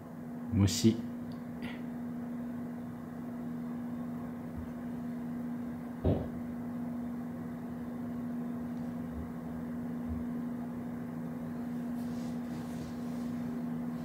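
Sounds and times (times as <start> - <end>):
low electrical hum: 0.0 - 14.0
short knock: 6.0 - 6.4.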